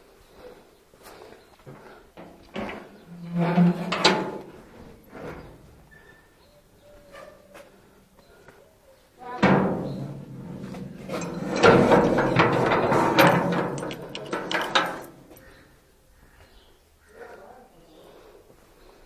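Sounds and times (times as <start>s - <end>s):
metal gate clanging shut: 2.2s - 5.5s, 9.4s - 15.4s
metallic clanks and rattles: 2.2s - 5.6s, 9.4s - 15.6s.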